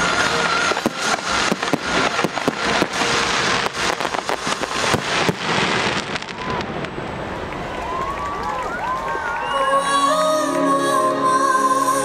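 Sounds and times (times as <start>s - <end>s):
steady hiss: 0.0s - 7.5s
fireworks bangs and crackling: 0.0s - 9.6s.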